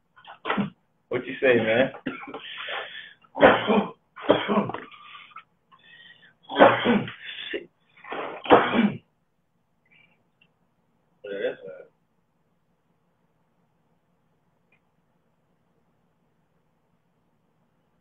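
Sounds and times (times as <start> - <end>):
man coughing: 3.4 - 4.9, 6.5 - 7.2, 8.4 - 9.1.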